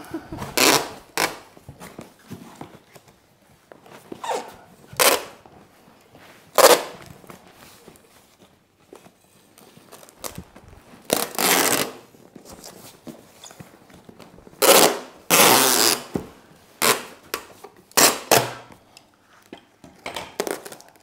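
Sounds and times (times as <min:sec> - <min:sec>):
parcel rustling: 0:00.0 - 0:17.8
packing tape ripping: 0:00.4 - 0:01.5, 0:04.3 - 0:05.4, 0:06.6 - 0:07.0, 0:09.9 - 0:12.1, 0:14.6 - 0:16.1, 0:16.8 - 0:18.7, 0:20.4 - 0:21.0.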